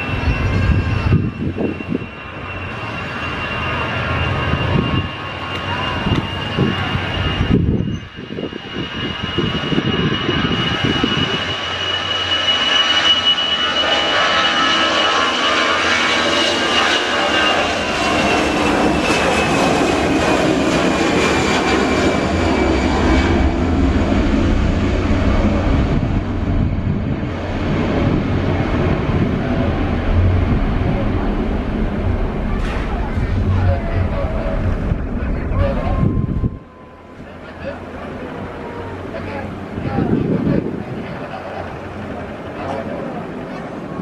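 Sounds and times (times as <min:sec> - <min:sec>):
jet engines at takeoff power: 0:00.0 - 0:44.0
deep rumble: 0:17.6 - 0:44.0
high fan whine: 0:23.8 - 0:44.0.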